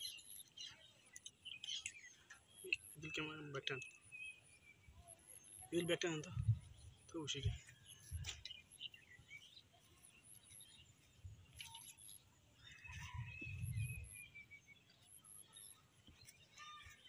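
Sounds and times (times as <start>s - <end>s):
low rumble on microphone: 12.9s - 14.2s.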